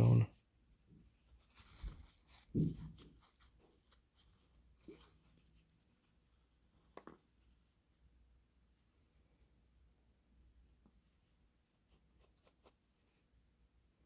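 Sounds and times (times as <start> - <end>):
paper towel rustling and rubbing: 1.1 - 6.2.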